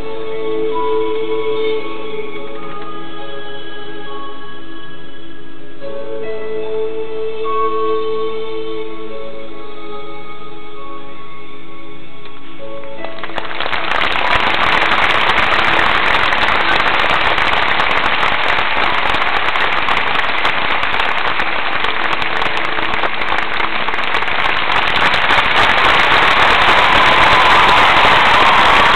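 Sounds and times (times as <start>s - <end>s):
music: 0.0s - 28.9s
crowd applauding: 13.0s - 28.9s.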